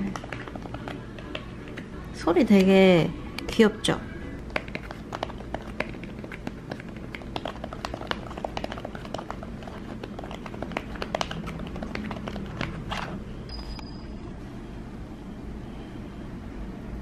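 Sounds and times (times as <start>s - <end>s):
typing on keyboard: 4.5s - 12.7s.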